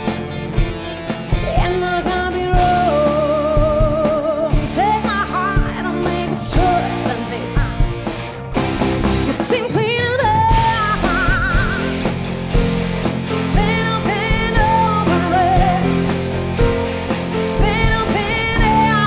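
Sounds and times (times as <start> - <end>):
rock band playing: 0.0 - 19.0
woman singing: 1.4 - 7.9, 9.3 - 11.9, 13.5 - 16.2, 17.6 - 19.0.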